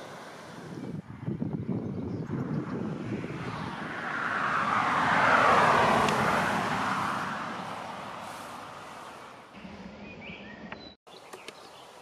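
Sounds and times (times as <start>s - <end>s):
vehicle passing by: 2.2s - 10.5s.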